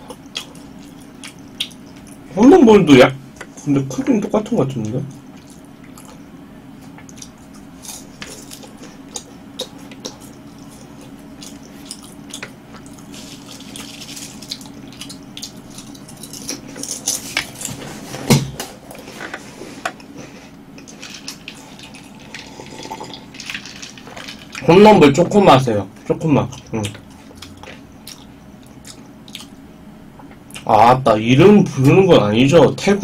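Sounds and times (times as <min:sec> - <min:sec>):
close chewing crunches: 0:06.9 - 0:17.8, 0:26.6 - 0:29.6.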